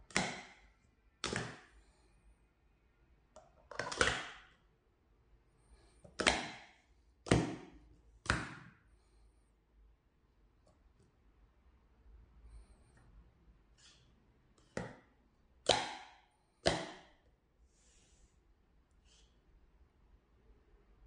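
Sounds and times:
plastic cups clattering: 3.6 - 4.4.

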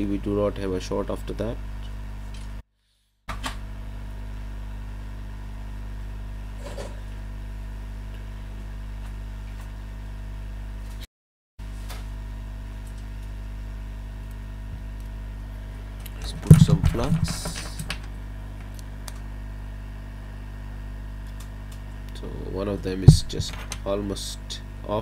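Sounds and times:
hot-air station blowing hum: 3.7 - 9.0, 12.2 - 25.0.

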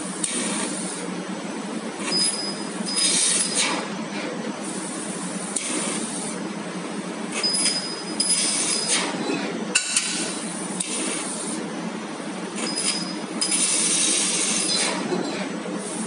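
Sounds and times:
laser cutter hissing: 0.0 - 1.1, 2.0 - 3.9, 4.6 - 6.5, 7.3 - 9.2, 9.8 - 11.8, 12.6 - 15.1, 15.8 - 16.0
steady machine hum: 0.0 - 16.0.

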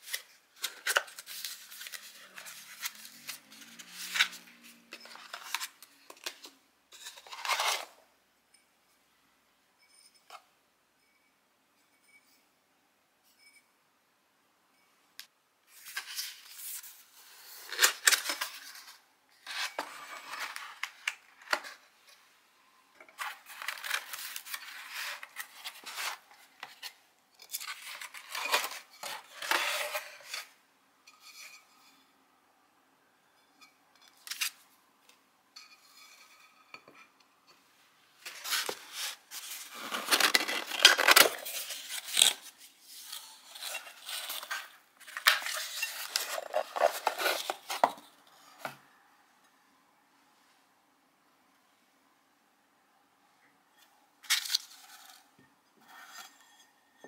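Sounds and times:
cardboard and paper rustling: 0.0 - 8.0, 23.1 - 27.0, 38.2 - 48.8.

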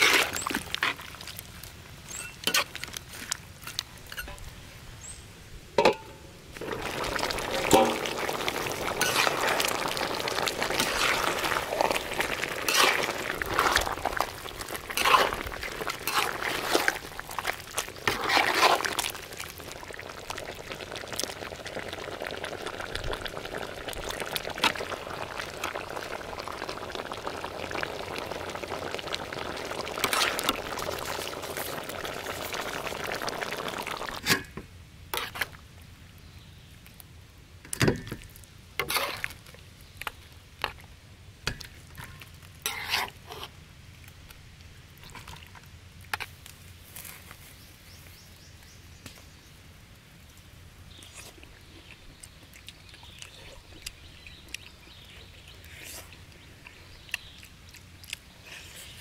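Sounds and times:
sauce bubbling in pot: 0.0 - 3.4, 6.5 - 34.5, 50.9 - 59.0
metal ladle stirring and scraping: 2.1 - 3.0, 5.8 - 19.2, 38.8 - 39.3, 42.0 - 43.5.

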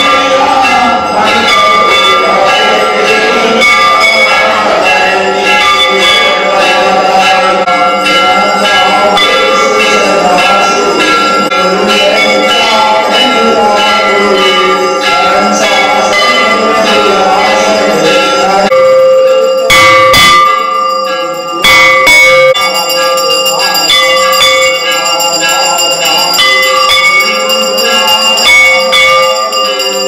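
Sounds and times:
temple bells ringing: 0.0 - 30.0.

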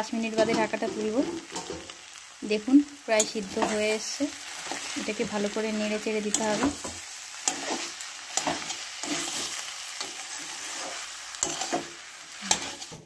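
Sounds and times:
vegetables sizzling in oil: 0.0 - 13.0
metal spatula scraping pan: 6.3 - 13.0.

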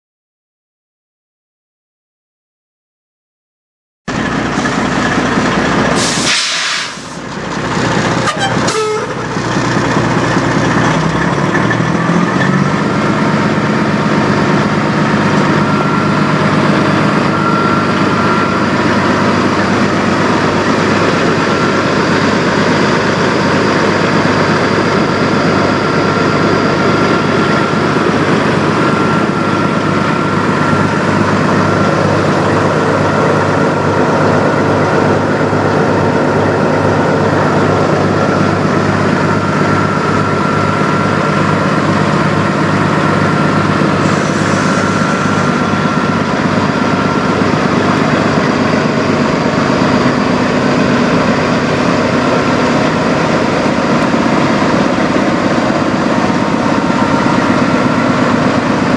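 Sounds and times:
truck diesel engine running: 4.1 - 58.9
air hiss: 6.0 - 7.2.

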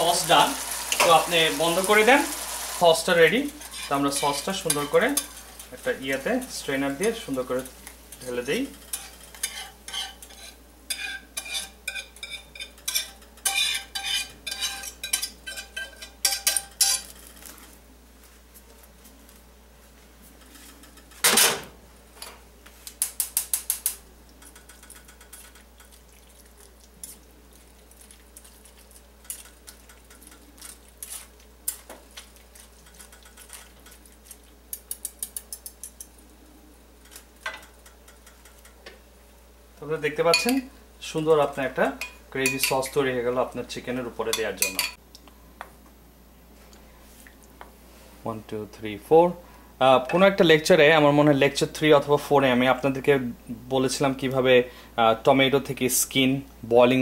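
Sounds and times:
metal kitchenware clinking and scraping: 3.4 - 5.8, 7.0 - 17.5, 44.3 - 45.0.

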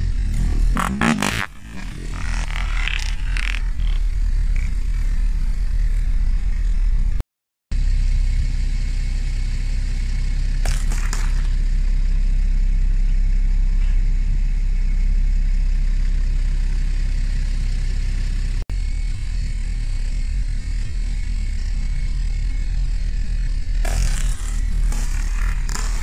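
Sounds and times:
car engine running low: 0.0 - 7.2, 7.8 - 26.0.

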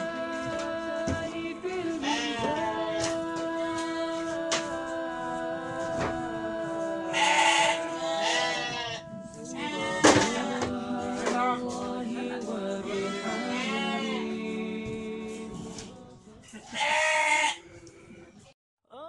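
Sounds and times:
music with long held notes: 0.0 - 16.5
sheep bleating: 2.0 - 3.1, 7.1 - 10.5, 12.9 - 14.4, 16.5 - 17.6.

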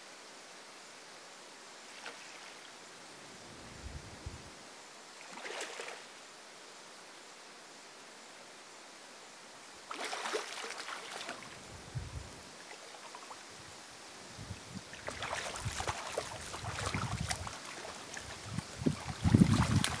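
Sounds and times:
eel splashing in water: 5.3 - 6.0, 9.9 - 11.5, 14.9 - 20.0.

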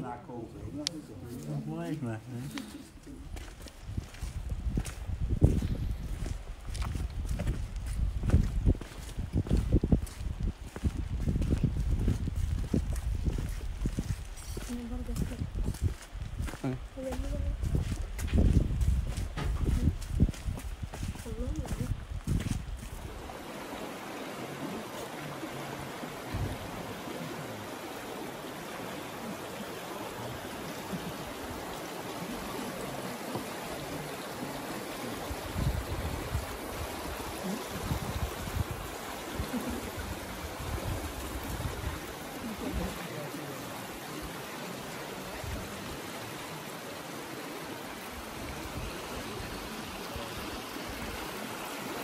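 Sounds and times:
river water rushing: 0.0 - 52.0
dull low bumps: 3.1 - 23.2.

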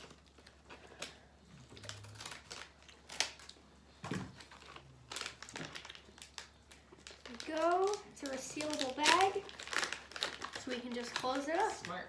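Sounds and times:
wrapper crinkling: 0.0 - 3.6, 4.2 - 12.0
scissors snipping plastic bag: 4.4 - 11.9.

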